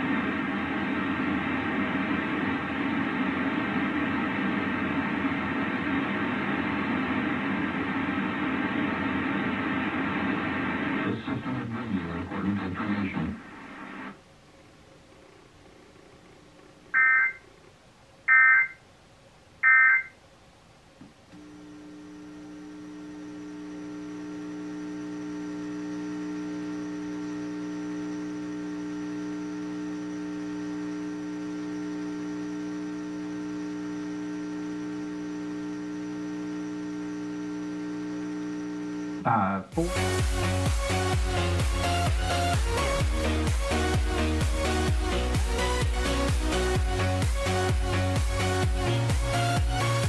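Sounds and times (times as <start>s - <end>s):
digital data tone bursts: 17.0s - 17.4s, 18.3s - 18.8s, 19.6s - 20.1s
droning hum of held tones: 21.2s - 39.9s.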